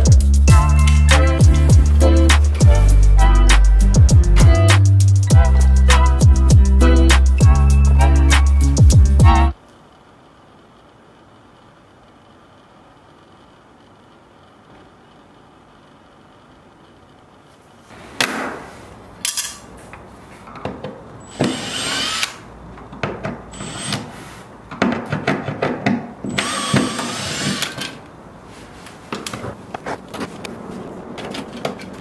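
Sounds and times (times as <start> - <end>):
electric screwdriver running: 21.3 - 22.4, 23.6 - 24.1, 26.3 - 27.9.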